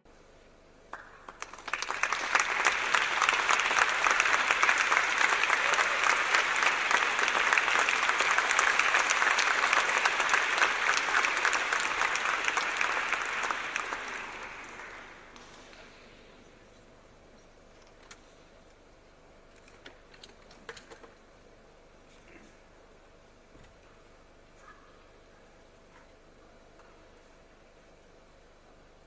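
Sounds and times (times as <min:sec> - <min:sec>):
audience applauding: 0:00.9 - 0:16.2.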